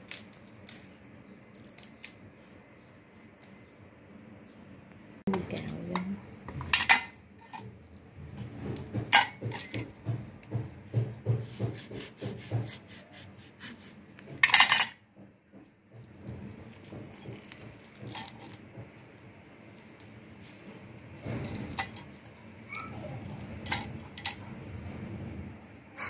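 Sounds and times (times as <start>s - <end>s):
knife knocking on wooden board: 8.6s - 12.9s.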